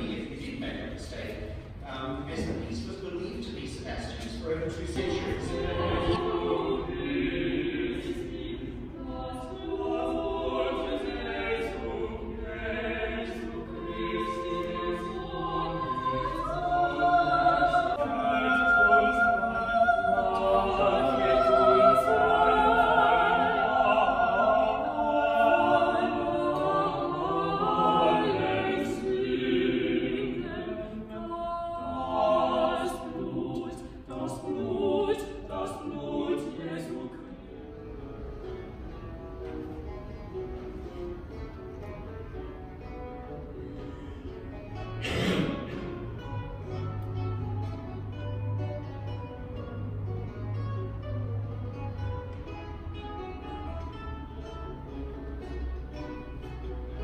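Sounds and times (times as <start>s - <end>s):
choir singing sacred piece: 0.0s - 39.4s, 44.9s - 46.9s
strings accompanying: 0.0s - 57.0s.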